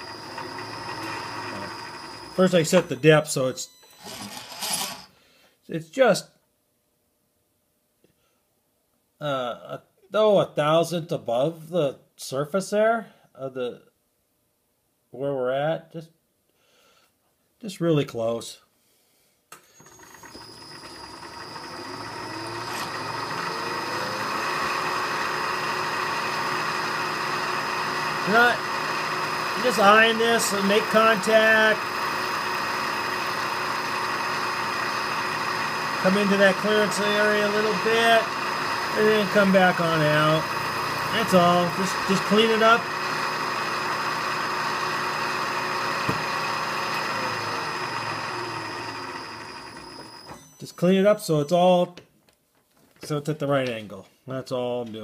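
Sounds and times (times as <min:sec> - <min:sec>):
milling machine high whine: 0:00.0 - 0:03.2, 0:03.8 - 0:05.1, 0:19.8 - 0:51.5.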